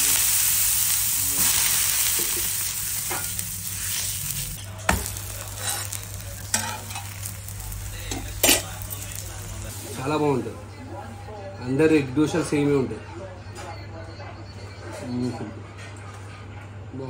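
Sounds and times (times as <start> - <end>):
water sizzling on hot iron pan: 0.0 - 10.3.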